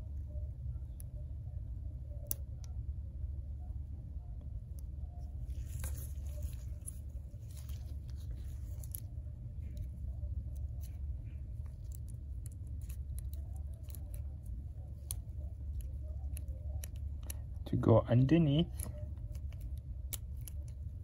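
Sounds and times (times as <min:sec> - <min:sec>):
steady low hum: 0:00.0 - 0:21.0
faint clicks and scrapes: 0:04.3 - 0:17.6, 0:18.6 - 0:21.0.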